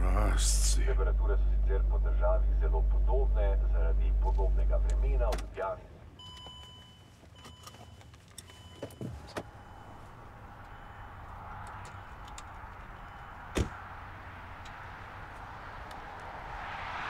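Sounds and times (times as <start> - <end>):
car door shutting with a thud: 13.5 - 13.8.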